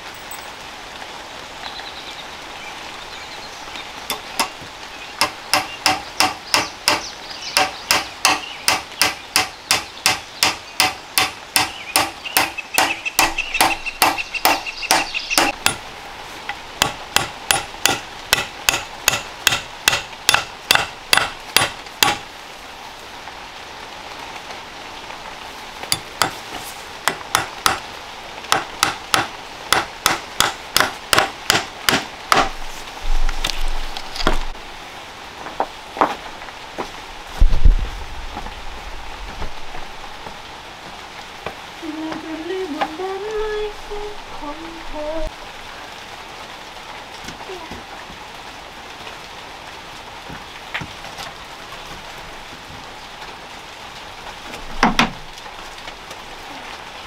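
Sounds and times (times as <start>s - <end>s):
hatchet knocking on wooden stick: 7.6s - 15.8s, 27.1s - 27.8s.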